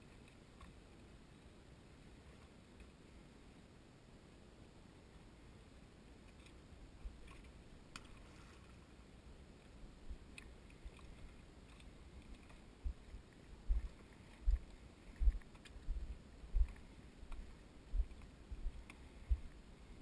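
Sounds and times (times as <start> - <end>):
faint low thumps: 12.8 - 20.0.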